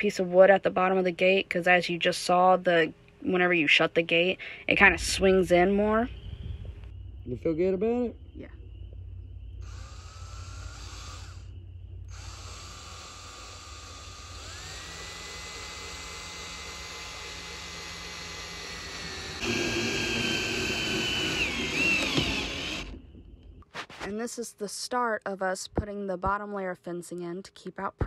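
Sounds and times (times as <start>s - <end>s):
power drill driving a screw: 9.7s - 11.4s, 12.1s - 23.0s.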